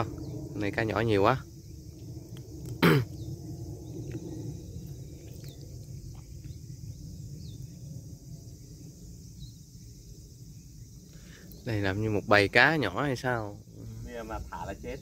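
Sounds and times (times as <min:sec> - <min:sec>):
low rumble: 0:00.0 - 0:11.1
insects chirring: 0:00.0 - 0:15.0.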